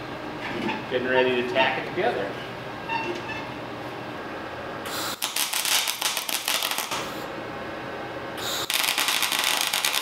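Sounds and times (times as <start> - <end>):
arc welding crackling: 4.9 - 7.3, 8.4 - 10.0.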